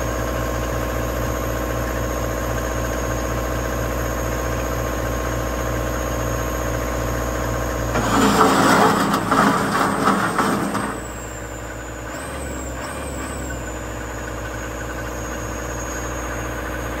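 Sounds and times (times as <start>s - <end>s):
diesel engine idling: 4.6s - 17.0s.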